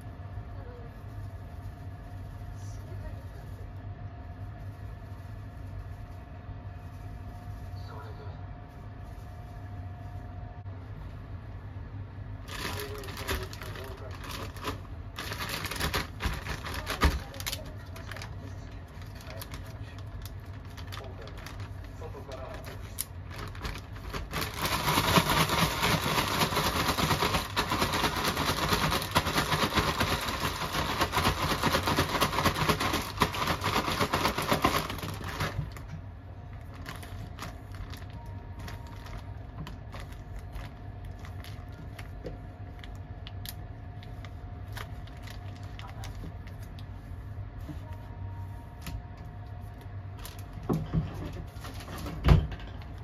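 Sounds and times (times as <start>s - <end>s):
plastic bag crinkling: 12.4s - 47.0s.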